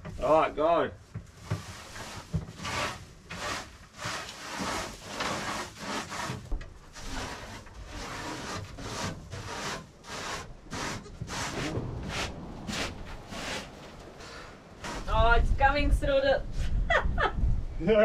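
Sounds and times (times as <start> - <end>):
scraping strokes on plywood: 1.3 - 15.2.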